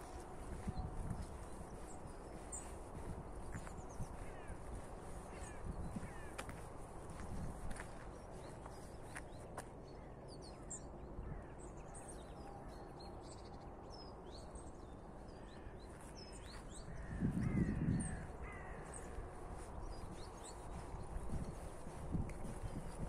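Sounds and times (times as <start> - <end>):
small birds chirping: 0.0 - 23.0
crow cawing: 4.2 - 4.6, 5.3 - 6.4, 17.0 - 19.2.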